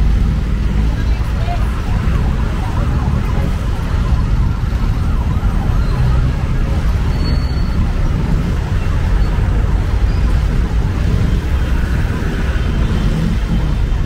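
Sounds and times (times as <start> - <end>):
traffic rumble: 0.0 - 14.0.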